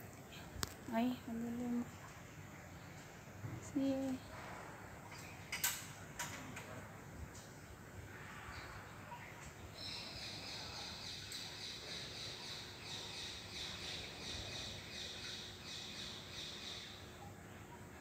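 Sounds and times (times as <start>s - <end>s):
bird chirping: 8.6s - 17.8s.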